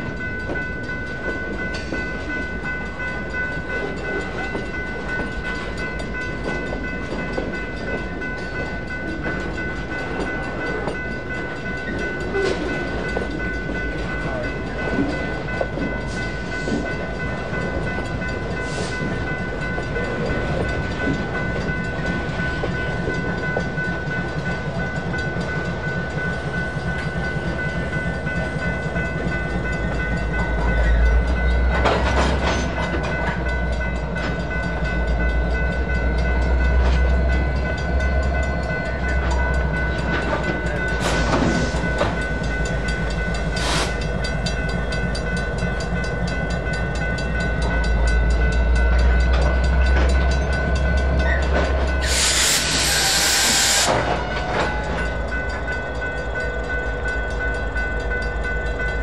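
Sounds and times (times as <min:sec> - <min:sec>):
crossing bell ringing: 0:00.0 - 0:59.0
diesel locomotives rumbling: 0:00.0 - 0:59.0
loud air hiss: 0:52.0 - 0:53.9.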